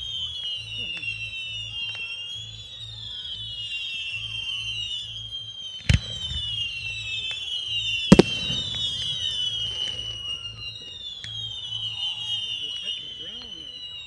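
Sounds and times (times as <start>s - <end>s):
firework shells bursting: 8.1s - 10.1s.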